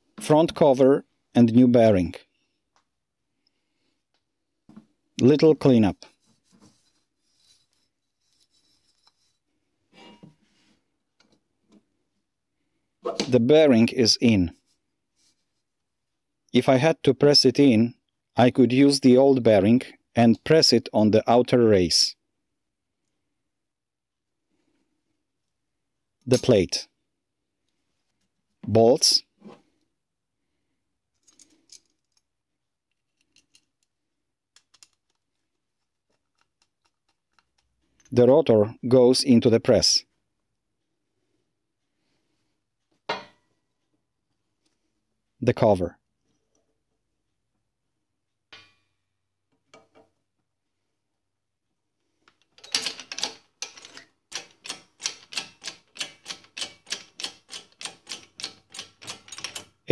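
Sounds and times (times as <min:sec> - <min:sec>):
faint clicks and metallic taps: 0:31.1 - 0:38.2.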